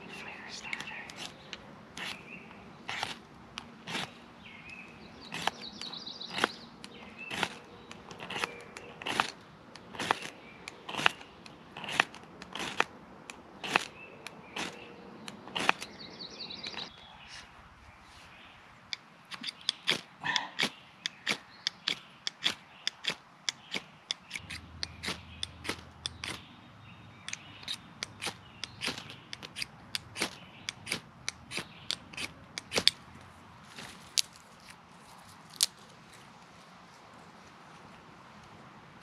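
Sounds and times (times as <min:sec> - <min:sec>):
ferro rod scraping striker: 0:00.6 - 0:02.3, 0:02.9 - 0:15.9, 0:18.9 - 0:26.5, 0:27.2 - 0:33.0.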